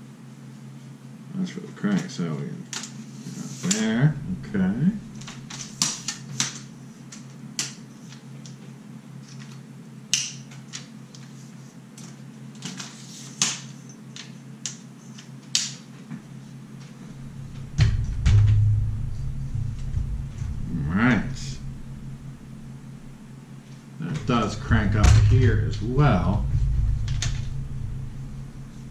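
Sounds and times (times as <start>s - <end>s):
low rumbling thud: 4.1s - 5.5s, 17.1s - 28.9s.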